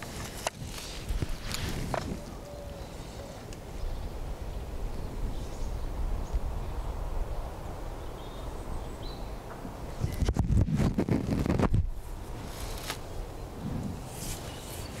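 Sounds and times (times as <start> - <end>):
wind rumble on microphone: 0.0 - 15.0
faint bird calls: 1.5 - 6.9.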